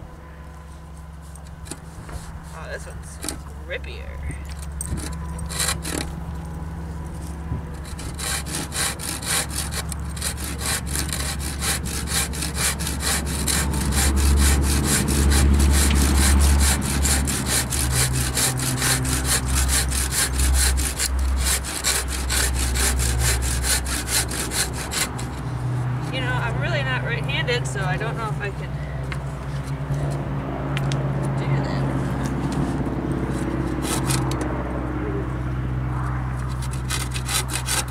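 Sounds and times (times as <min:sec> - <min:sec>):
steady low rumble: 0:00.0 - 0:37.9
handsaw cutting wood: 0:01.4 - 0:03.4, 0:04.9 - 0:06.2, 0:07.7 - 0:26.9, 0:32.1 - 0:34.4, 0:36.4 - 0:37.9.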